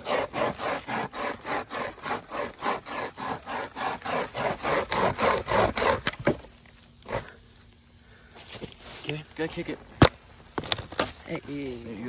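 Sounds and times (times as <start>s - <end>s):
hand chain saw rasping through log: 0.0s - 6.4s.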